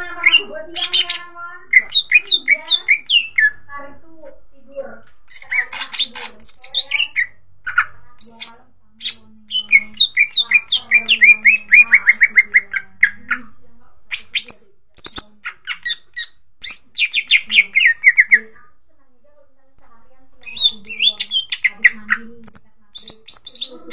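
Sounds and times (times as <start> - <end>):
bird singing chirps and whistles: 22.4 - 23.9.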